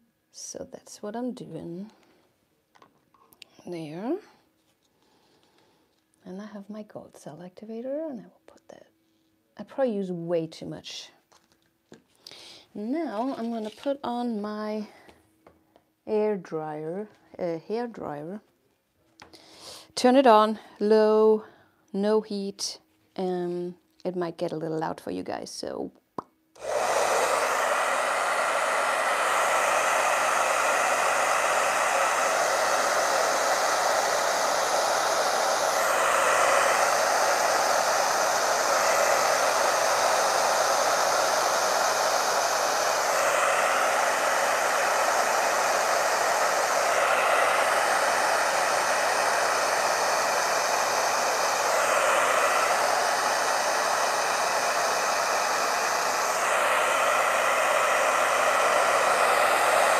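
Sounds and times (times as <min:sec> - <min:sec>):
hair dryer blowing air: 0:12.3 - 0:14.9, 0:26.6 - 0:59.9.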